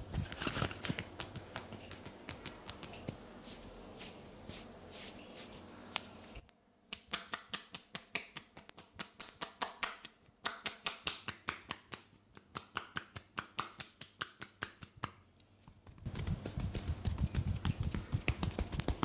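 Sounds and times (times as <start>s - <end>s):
hands slapping on back: 0.8s - 3.2s, 6.9s - 15.2s, 16.1s - 19.0s.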